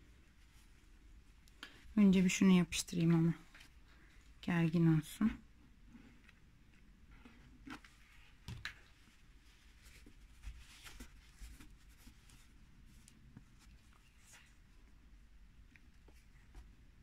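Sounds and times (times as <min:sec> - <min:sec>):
fabric rustling: 0:06.9 - 0:14.9.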